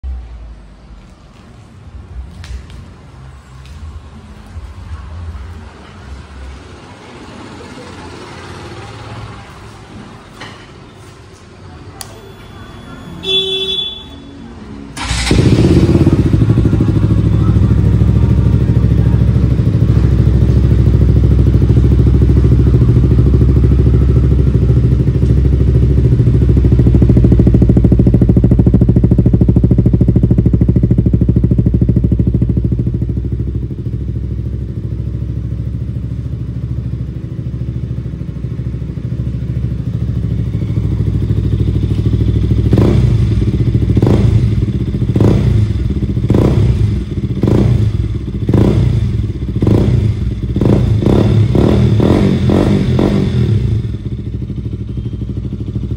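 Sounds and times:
motorcycle engine idling: 0:15.0 - 0:55.9.

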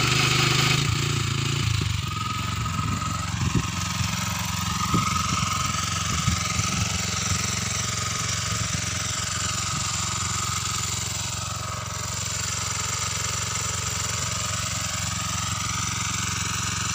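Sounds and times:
cultivator engine running: 0:00.0 - 0:16.9.

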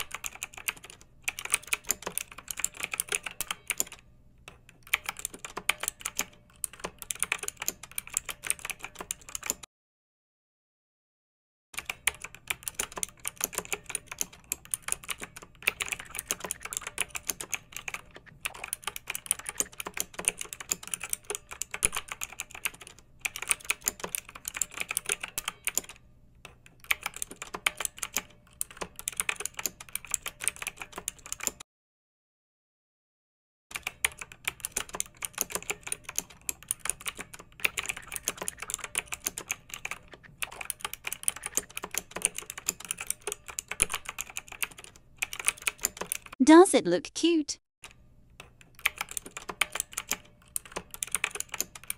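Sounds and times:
fast clicking and tapping: 0:11.8 - 0:31.6, 0:33.7 - 0:46.4, 0:48.4 - 0:51.9.

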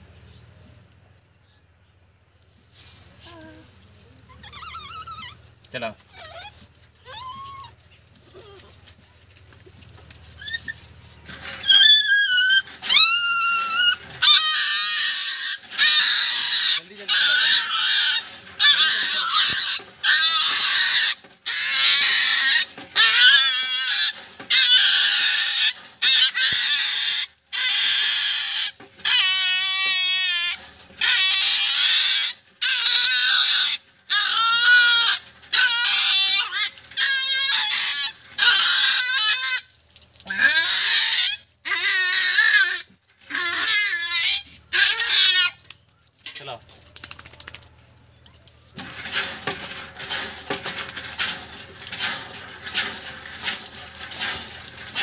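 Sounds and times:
puppy screaming and yelping: 0:04.2 - 0:08.7, 0:10.4 - 0:39.7, 0:40.3 - 0:45.7
running water: 0:39.5 - 0:40.6, 0:45.5 - 0:55.0.

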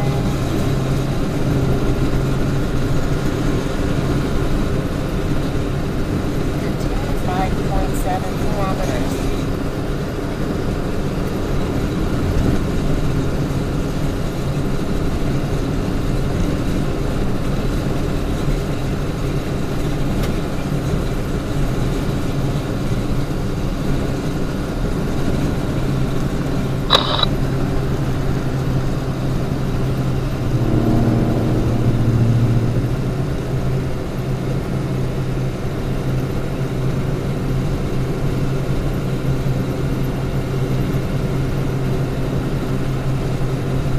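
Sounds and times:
low droning note: 0:00.0 - 0:03.3, 0:28.4 - 0:35.5
car road and engine noise: 0:00.0 - 0:43.9
sharp click: 0:26.9 - 0:27.3.

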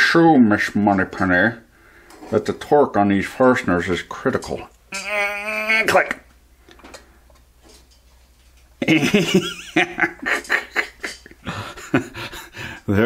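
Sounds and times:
man's squeaky giggle: 0:04.9 - 0:06.0.

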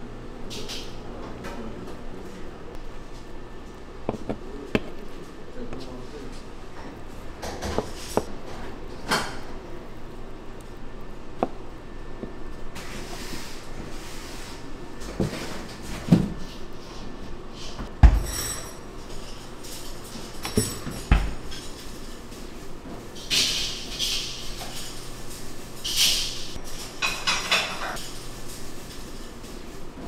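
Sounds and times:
utensils and dishes clattering: 0:18.0 - 0:22.5, 0:23.2 - 0:29.7.

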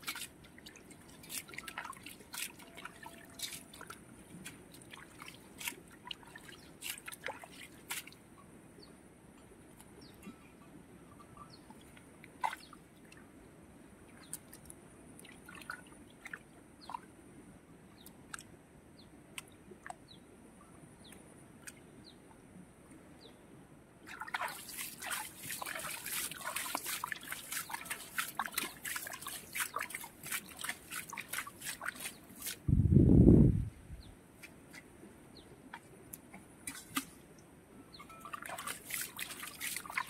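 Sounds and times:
hands splashing muddy water: 0:00.0 - 0:08.2, 0:24.1 - 0:32.6, 0:38.1 - 0:40.0
water dripping: 0:00.0 - 0:08.2, 0:24.1 - 0:32.6, 0:38.0 - 0:40.0.

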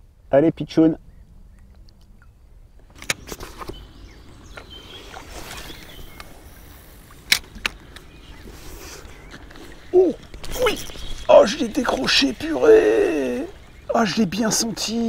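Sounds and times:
faint water ambience: 0:00.0 - 0:15.0
clicks and light knocks: 0:07.2 - 0:08.1.

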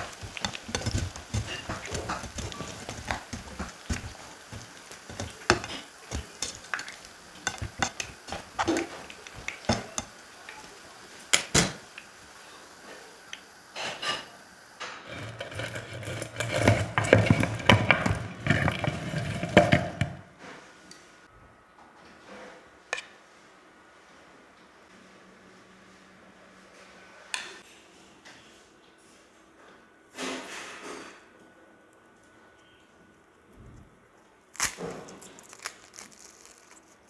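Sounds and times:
utensils clinking against dishes: 0:00.0 - 0:10.6.

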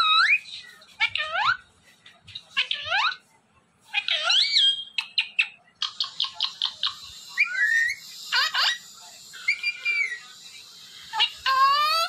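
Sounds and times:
parrot whistling and chirping: 0:00.0 - 0:01.3, 0:04.0 - 0:10.4.

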